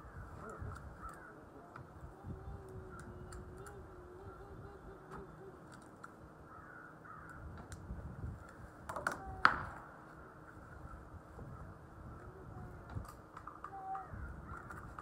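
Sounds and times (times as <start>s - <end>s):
crows cawing: 0.0s - 1.5s, 6.4s - 7.5s.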